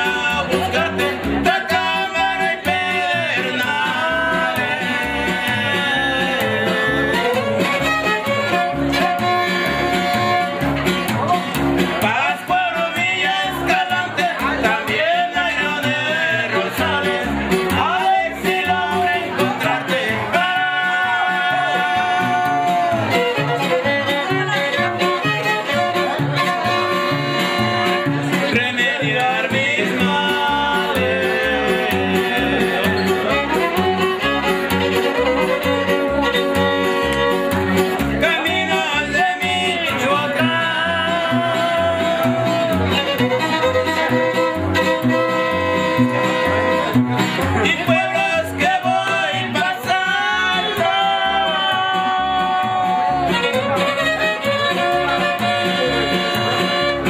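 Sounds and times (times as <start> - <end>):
strummed guitar: 0.0 - 57.0
upright bass: 0.0 - 57.0
violin melody: 3.2 - 10.9, 20.7 - 38.9, 40.2 - 47.2, 49.0 - 57.0.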